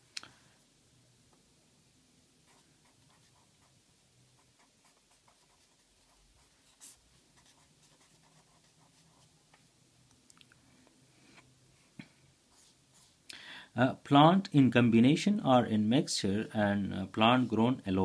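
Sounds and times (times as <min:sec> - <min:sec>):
pen scratching on paper: 0:02.5 - 0:03.8, 0:04.4 - 0:09.4.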